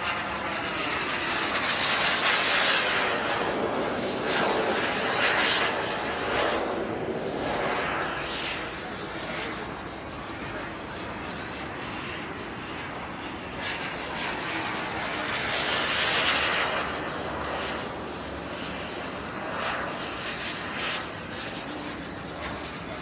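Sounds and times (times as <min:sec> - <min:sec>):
model jet flying past: 0:00.0 - 0:23.0.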